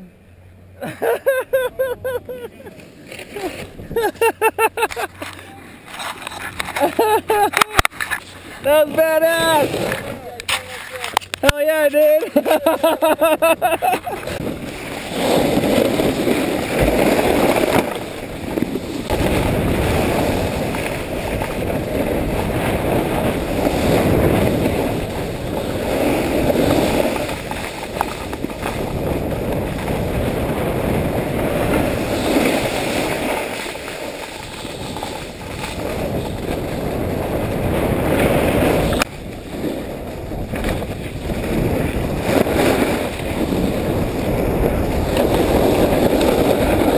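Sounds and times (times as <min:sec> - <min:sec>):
skis scraping on snow: 0:02.4 - 0:46.9
wind on microphone: 0:13.4 - 0:46.9.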